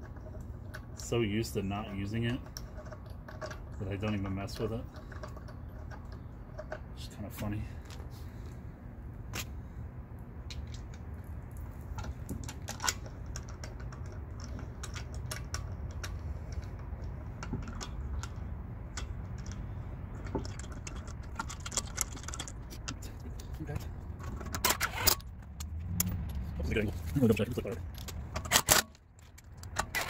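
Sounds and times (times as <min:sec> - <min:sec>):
low background hum: 0:00.0 - 0:30.0
bolts clicking into wheel hub: 0:10.4 - 0:30.0.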